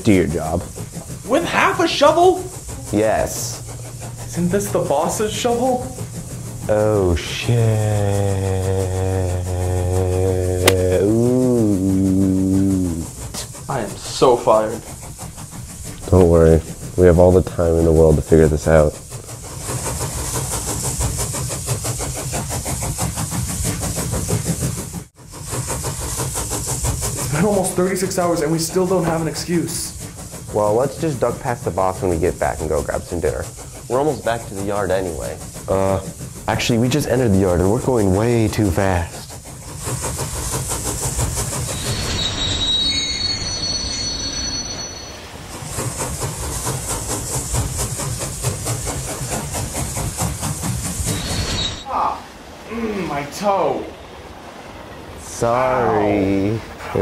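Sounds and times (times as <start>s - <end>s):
train engine rumbling: 0.0s - 57.0s
train wheels squealing: 26.5s - 52.0s.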